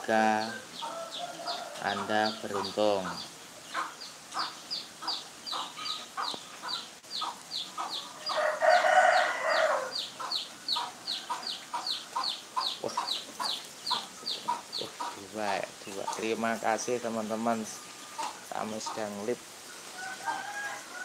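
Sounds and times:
rooster crowing: 0:00.4 - 0:02.4, 0:08.0 - 0:10.1, 0:19.8 - 0:21.0.

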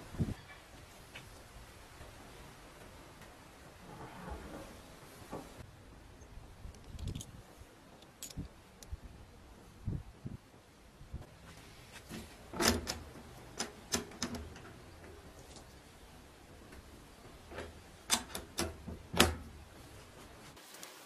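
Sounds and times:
metal latch clicking: 0:12.6 - 0:14.7, 0:17.6 - 0:19.5.

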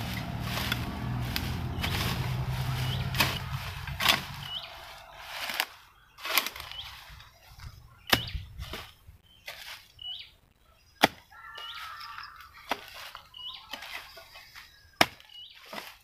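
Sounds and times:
hoe chopping into soil: 0:00.0 - 0:07.2, 0:08.0 - 0:09.9, 0:11.0 - 0:11.3, 0:12.6 - 0:16.0
bird chirping: 0:00.1 - 0:15.8.

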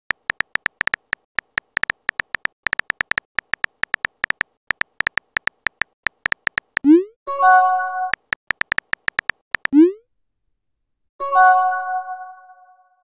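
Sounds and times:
phone keyboard clicks: 0:00.1 - 0:06.9, 0:08.1 - 0:09.8.

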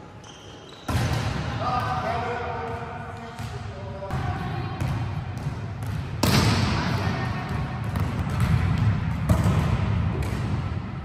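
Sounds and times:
volleyball smack echoing: 0:04.8 - 0:07.1.

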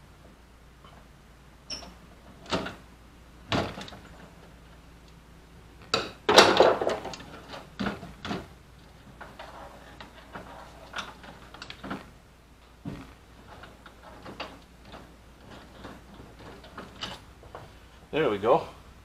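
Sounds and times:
metal clanks and knocks: 0:05.9 - 0:08.5
metal rattling clatter: 0:13.3 - 0:17.6.

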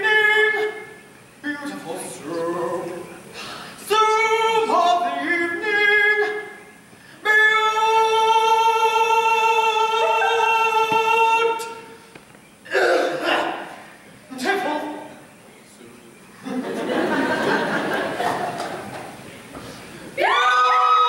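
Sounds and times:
person singing unaccompanied: 0:00.0 - 0:12.0.

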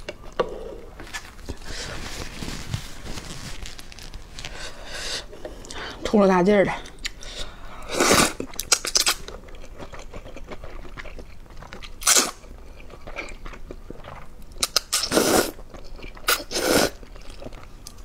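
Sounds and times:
person slurping noodles: 0:07.8 - 0:08.4, 0:14.8 - 0:15.6, 0:16.3 - 0:17.0
wet chewing: 0:08.3 - 0:18.0.

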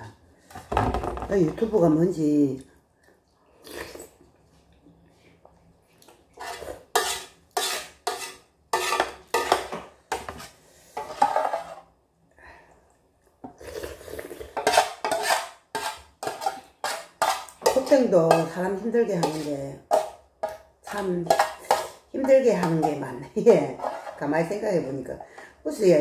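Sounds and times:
metal utensil scraping a pot: 0:06.4 - 0:11.9, 0:14.4 - 0:18.6, 0:19.2 - 0:24.3.

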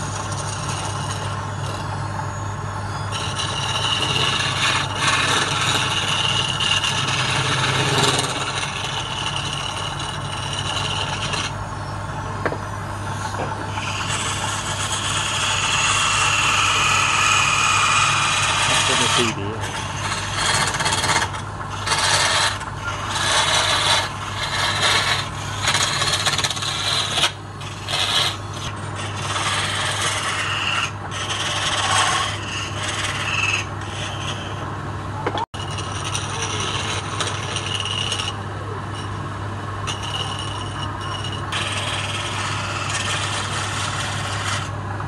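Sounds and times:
chisel scraping wood on lathe: 0:00.0 - 0:11.7, 0:12.4 - 0:34.7, 0:35.4 - 0:44.8
lathe humming: 0:00.0 - 0:45.0.

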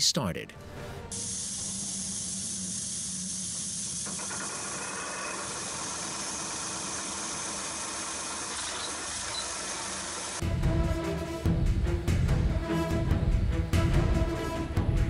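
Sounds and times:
steady hiss: 0:01.1 - 0:10.4.

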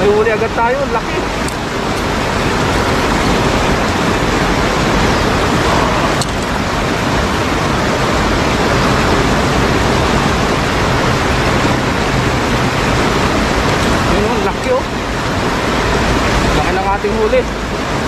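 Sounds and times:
water rushing over rocks: 0:00.0 - 0:18.0.

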